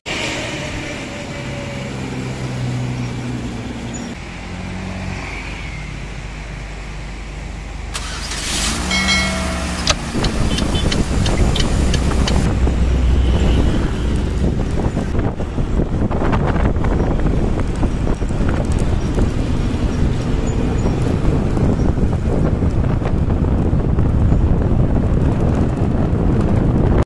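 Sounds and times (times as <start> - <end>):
diesel trucks running: 0.1 - 27.0
wind rumbling on microphone: 8.8 - 27.0.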